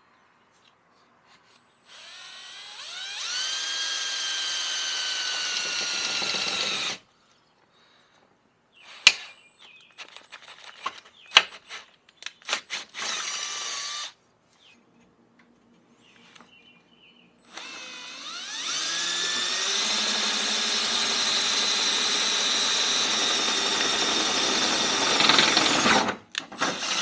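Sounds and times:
cordless drill drilling metal: 0:01.8 - 0:07.0, 0:12.6 - 0:14.2, 0:17.4 - 0:27.0.

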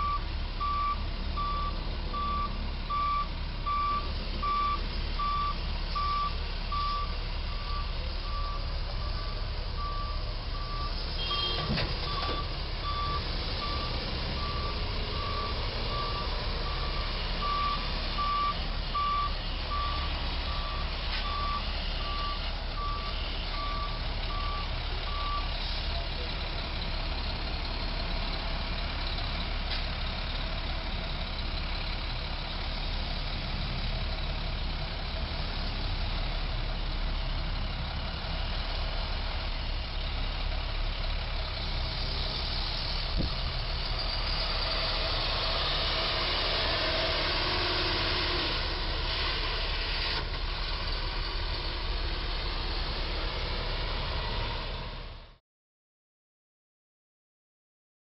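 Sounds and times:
truck backup alarm beeps: 0:00.0 - 0:27.0
diesel truck engine running: 0:00.0 - 0:55.4.

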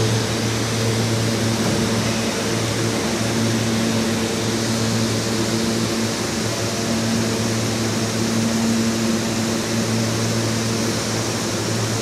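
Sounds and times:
train electrical hum: 0:00.0 - 0:12.0.

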